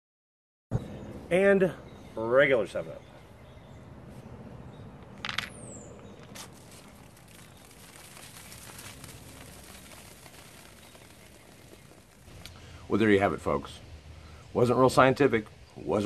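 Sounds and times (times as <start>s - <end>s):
soda fizzing and spraying: 6.5s - 12.3s.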